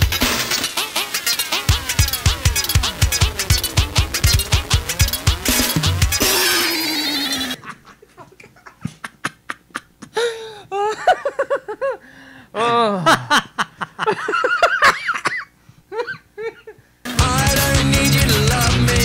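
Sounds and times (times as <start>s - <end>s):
loud music: 0.0s - 7.6s, 17.1s - 19.0s
men laughing into microphones: 7.4s - 12.0s, 12.6s - 16.8s.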